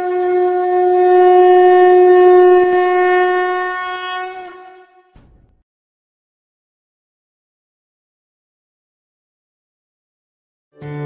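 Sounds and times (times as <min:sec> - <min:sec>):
conch shell blown: 0:00.0 - 0:05.2.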